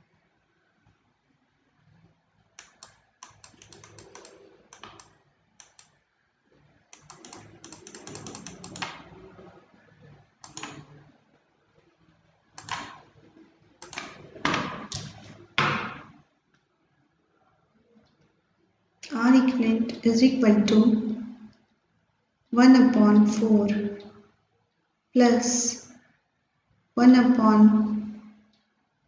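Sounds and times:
keyboard and mouse clicking: 0:02.6 - 0:06.0, 0:06.9 - 0:09.5, 0:10.4 - 0:11.1, 0:12.6 - 0:13.1, 0:13.8 - 0:15.2.

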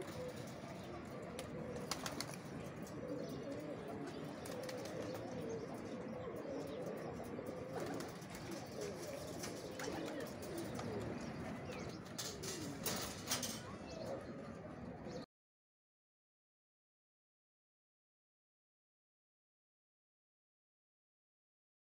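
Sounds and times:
pigeons cooing: 0:00.0 - 0:15.2
wings flapping: 0:01.3 - 0:02.8, 0:04.1 - 0:05.3, 0:07.7 - 0:13.8.

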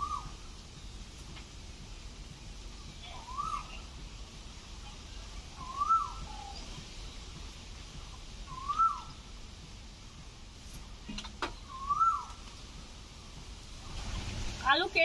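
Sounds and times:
bird whistling rising and falling: 0:00.0 - 0:00.4, 0:03.0 - 0:03.9, 0:05.6 - 0:07.2, 0:08.5 - 0:09.2, 0:11.6 - 0:12.4.

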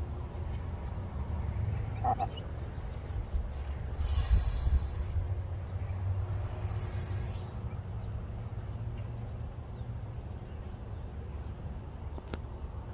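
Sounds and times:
goose hissing: 0:03.8 - 0:05.3, 0:06.1 - 0:07.6.

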